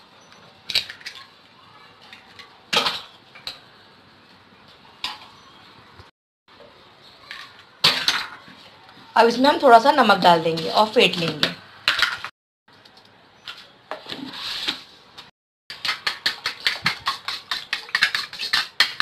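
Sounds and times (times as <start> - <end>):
eggs cracking on steel bowl: 15.7 - 19.0.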